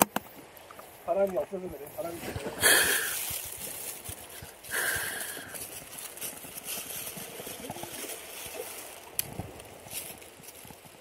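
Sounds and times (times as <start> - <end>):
plastic bag rustling: 2.2 - 11.0.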